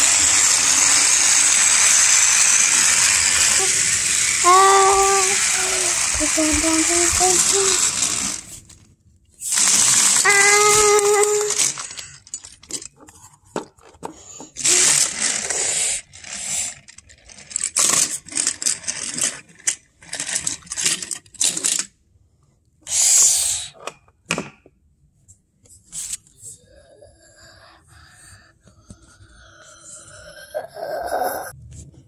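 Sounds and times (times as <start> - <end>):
plastic toys clattering on wooden floor: 0.2 - 8.8, 9.5 - 21.9.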